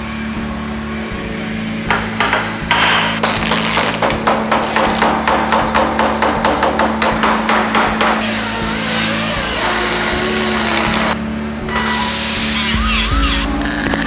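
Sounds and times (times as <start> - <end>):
background music with low tone: 0.0 - 14.0
steady hiss: 11.8 - 13.5.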